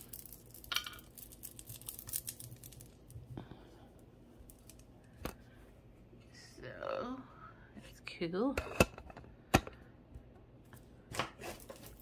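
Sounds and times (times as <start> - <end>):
jewelry pieces clicking and clinking: 0.0 - 3.2.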